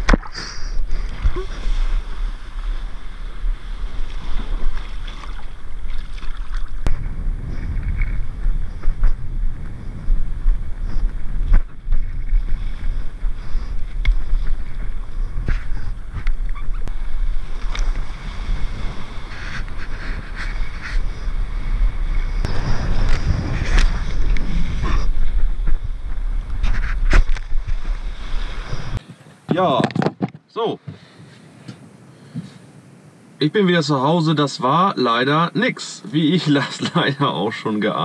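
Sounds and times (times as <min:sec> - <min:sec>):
water rushing and splashing: 0:00.0 - 0:07.0
wind buffeting microphone: 0:00.0 - 0:29.2.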